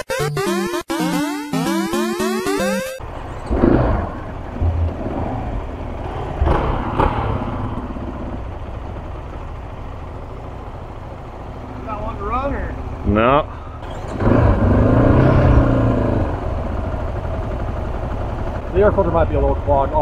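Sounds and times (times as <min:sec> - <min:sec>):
motorcycle engine idling roughly: 0:05.9 - 0:13.0, 0:16.4 - 0:20.0.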